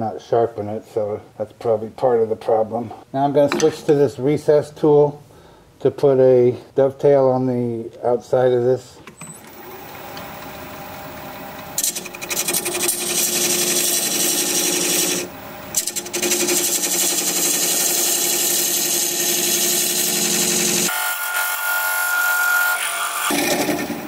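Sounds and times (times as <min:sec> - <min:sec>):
lathe humming: 0:09.5 - 0:21.1
tool scraping wood on lathe: 0:11.8 - 0:20.9.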